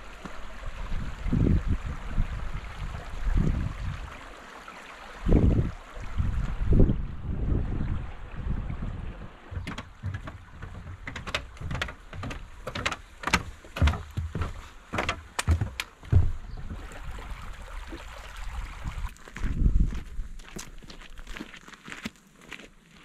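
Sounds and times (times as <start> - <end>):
stream running: 0.0 - 22.0
footsteps on wooden planks: 9.2 - 16.9.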